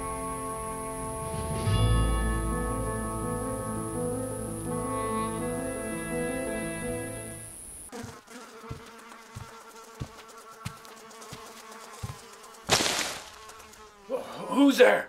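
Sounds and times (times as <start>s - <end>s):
orchestral music: 0.0s - 7.5s
flies buzzing: 0.0s - 14.4s.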